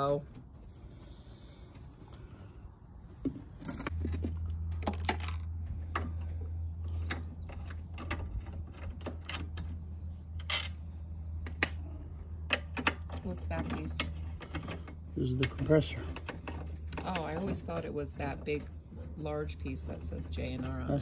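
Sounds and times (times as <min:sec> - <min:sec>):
metal tools clinking: 0:03.6 - 0:04.0, 0:10.4 - 0:10.8.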